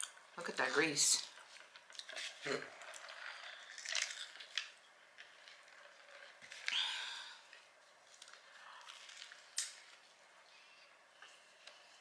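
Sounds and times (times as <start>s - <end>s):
biting and chewing: 1.5s - 6.8s.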